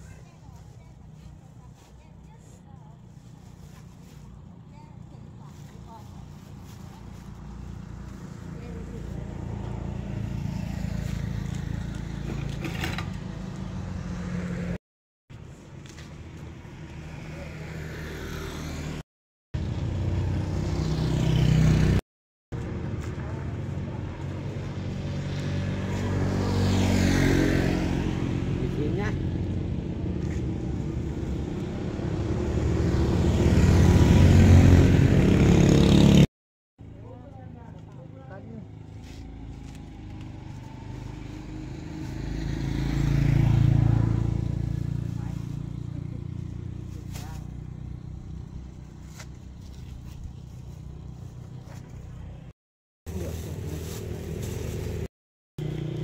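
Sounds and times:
motorbike engine approaching: 0.0 - 14.8, 19.6 - 22.0, 22.6 - 36.3, 37.0 - 52.5, 53.1 - 56.0
vehicle engine running: 53.1 - 56.0.

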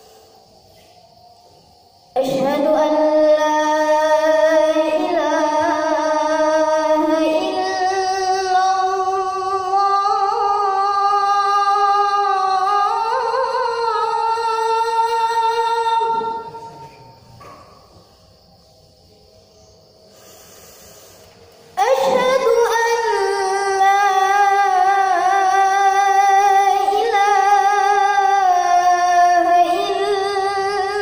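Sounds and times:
boy chanting into microphone: 2.2 - 17.2, 21.8 - 31.0.

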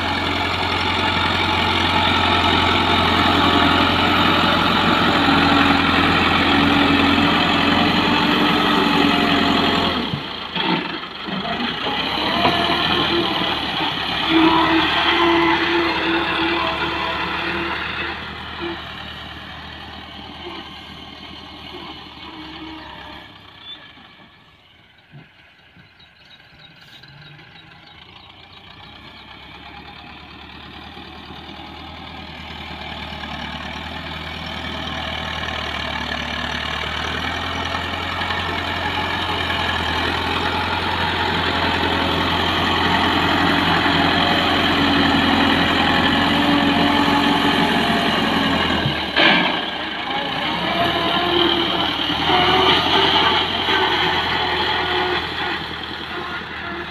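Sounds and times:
tractor diesel engine running: 0.0 - 56.9.

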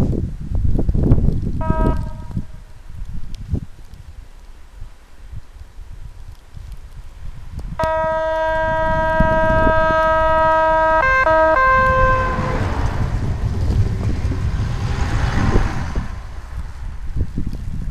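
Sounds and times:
railcar engine and wheels rumble: 0.0 - 3.8, 7.4 - 17.9
railcar horn blast: 1.6 - 2.7, 7.8 - 13.1.

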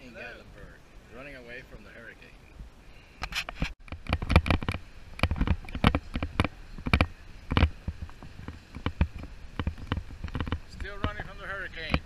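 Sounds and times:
camera jostling knocks: 3.3 - 12.0.

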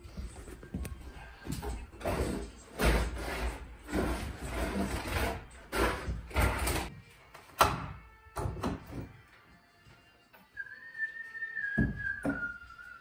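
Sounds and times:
objects scraping and dragging: 0.0 - 6.9.

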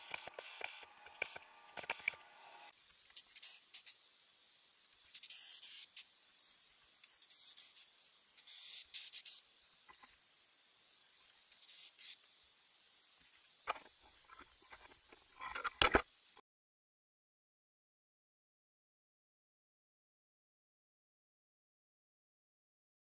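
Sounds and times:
sharp clicks: 0.0 - 2.2
insects chirping: 0.0 - 16.4
short hissy bursts: 1.9 - 4.0, 5.1 - 6.2, 7.2 - 9.5, 11.6 - 12.2.

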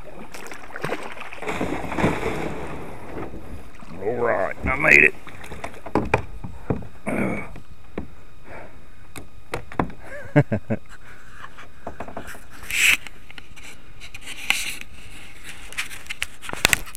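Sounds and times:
handling knocks and scrapes: 1.4 - 6.9.

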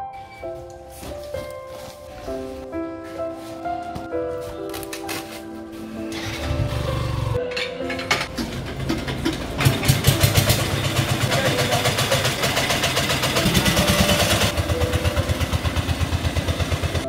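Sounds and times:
small engine running: 8.4 - 17.0.

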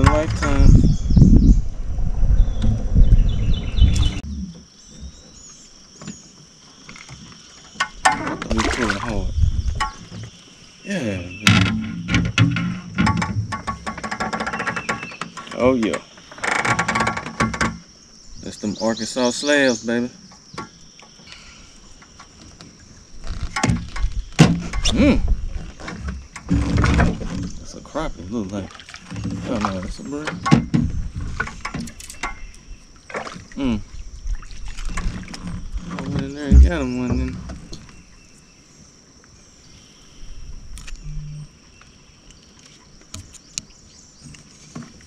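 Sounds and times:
insect drone: 0.0 - 45.0
gear bumping and clicking in boat: 3.9 - 10.4, 11.4 - 17.9, 20.2 - 33.6, 34.3 - 38.2, 42.2 - 45.0
brief low tone: 41.0 - 41.5.

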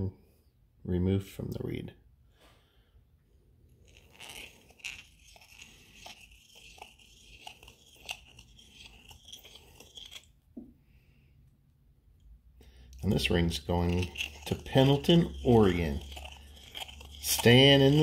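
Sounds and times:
blade scraping metal: 3.7 - 10.3, 13.2 - 18.0.

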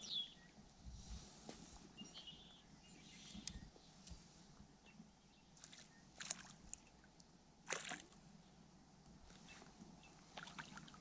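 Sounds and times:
fish splashing at water surface: 7.6 - 8.2.

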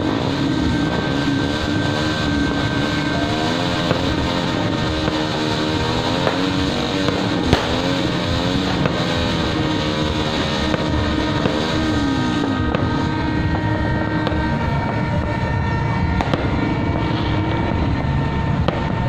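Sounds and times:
dense steady crowd roar: 0.0 - 19.0
firecracker pops: 6.1 - 15.3.

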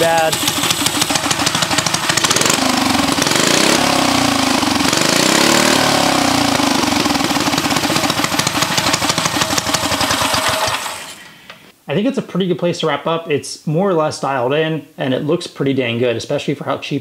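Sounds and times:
small engine revving: 0.0 - 11.0.

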